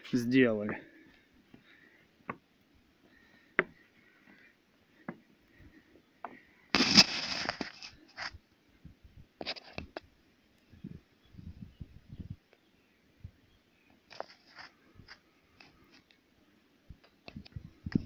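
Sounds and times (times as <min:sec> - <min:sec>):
climbing footsteps and scuffs: 0:06.2 - 0:08.4
loud scrape: 0:06.7 - 0:08.3.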